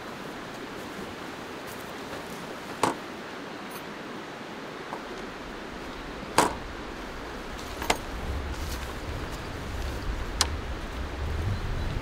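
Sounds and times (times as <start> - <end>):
river water rushing: 0.0 - 11.4
sharp clicks of camping gear: 6.3 - 6.7, 7.5 - 9.0.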